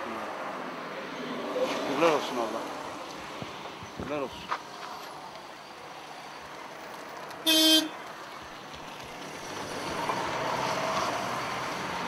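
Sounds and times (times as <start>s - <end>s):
background noise: 0.0s - 12.0s
vehicle horn toot: 7.4s - 8.0s.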